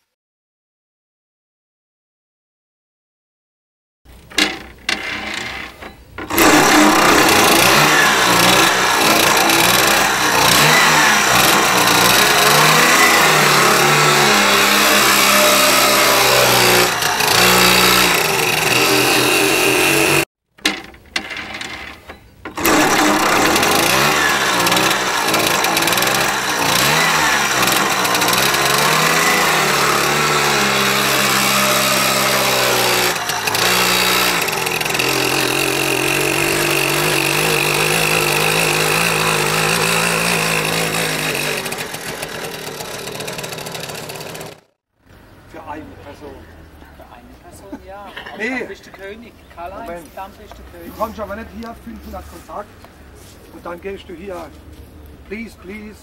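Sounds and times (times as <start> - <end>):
moped engine revving: 4.4 - 20.3, 21.2 - 44.8.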